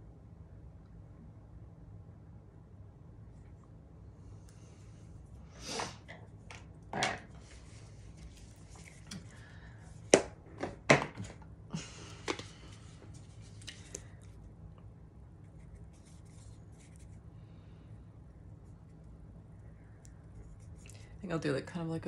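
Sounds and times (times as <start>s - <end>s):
rustling: 7.3s - 9.5s, 15.4s - 17.2s.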